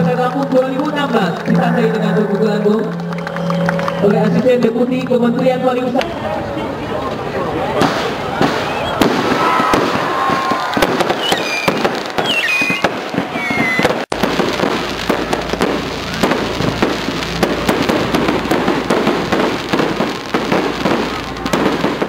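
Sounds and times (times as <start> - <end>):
fireworks cracking and popping: 7.8 - 22.0
whistling fireworks: 7.8 - 22.0
low rumble: 14.1 - 21.8.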